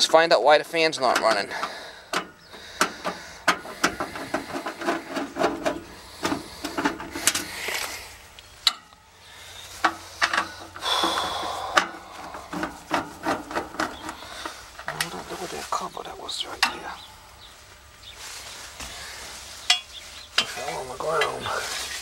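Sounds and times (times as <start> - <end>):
tapping and scraping on metal: 1.0 - 7.5, 9.8 - 15.1, 19.6 - 21.5.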